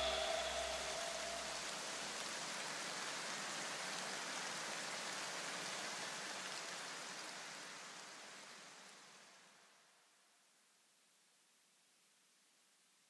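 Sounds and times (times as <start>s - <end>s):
electronic music noisy hiss: 0.0s - 1.8s.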